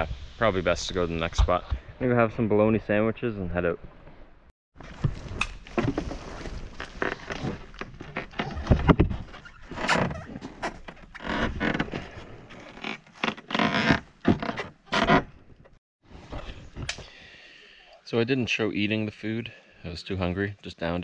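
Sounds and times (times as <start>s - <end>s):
objects knocking and thudding: 5.0s - 12.1s.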